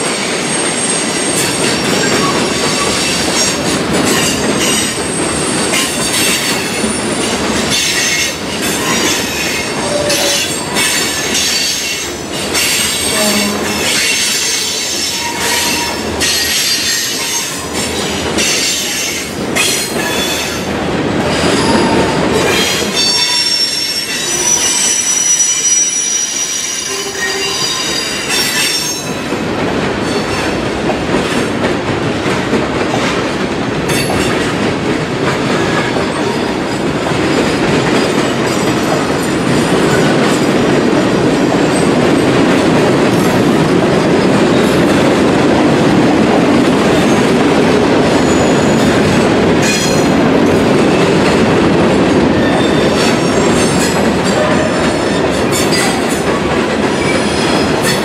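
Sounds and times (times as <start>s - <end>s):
high wheel squeal: 0.4s - 3.0s, 21.4s - 22.2s, 22.8s - 29.1s.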